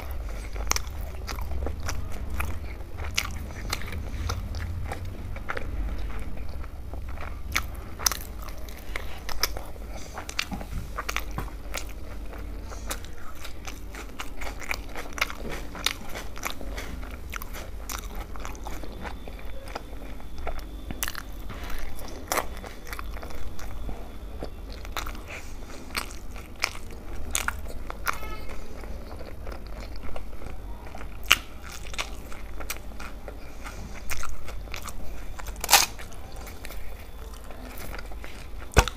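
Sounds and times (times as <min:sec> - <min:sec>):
low hum: 0:00.0 - 0:28.0
person chewing food: 0:00.0 - 0:38.9.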